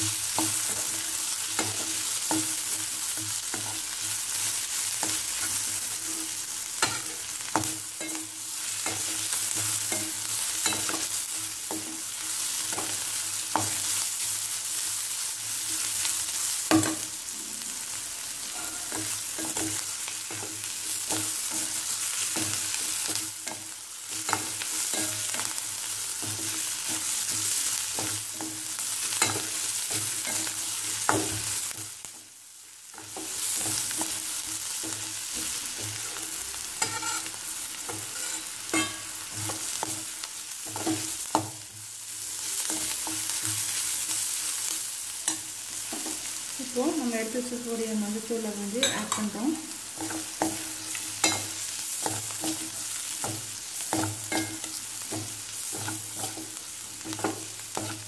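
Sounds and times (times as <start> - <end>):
steel spoon scraping a pan: 0.0 - 14.0, 17.8 - 31.9, 32.9 - 40.0, 48.7 - 58.0
vegetables sizzling in oil: 0.0 - 58.0.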